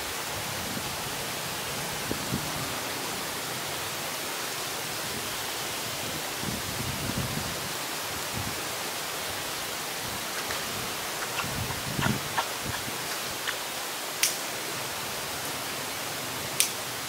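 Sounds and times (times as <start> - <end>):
steady even hiss: 0.0 - 17.0.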